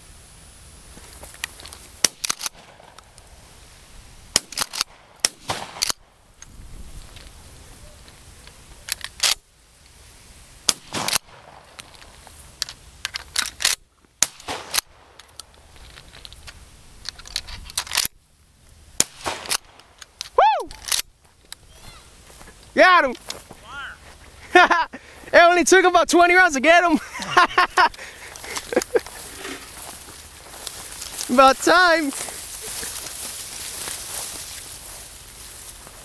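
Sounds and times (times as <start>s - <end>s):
shotgun shots: 2.0s - 2.9s, 4.3s - 6.1s, 10.7s - 11.7s, 14.2s - 15.1s, 19.0s - 19.8s.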